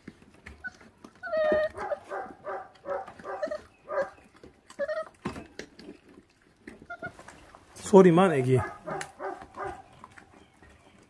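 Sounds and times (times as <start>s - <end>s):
puppy chewing clicks: 0.0s - 7.6s, 8.6s - 11.0s
puppy whining: 0.4s - 7.5s.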